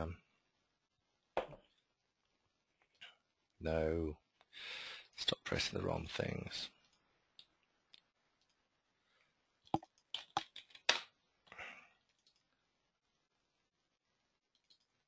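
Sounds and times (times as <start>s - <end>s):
computer mouse clicking: 12.1s - 12.5s, 14.5s - 15.0s.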